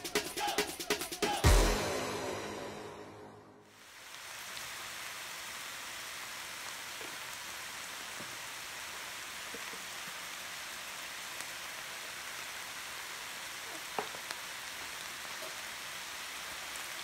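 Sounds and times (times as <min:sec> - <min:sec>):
ground beef sizzling: 0:03.6 - 0:17.0.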